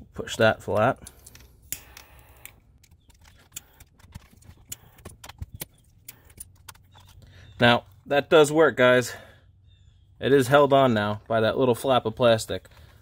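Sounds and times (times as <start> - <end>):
plastic parts clicking and tapping: 0.6 - 7.3.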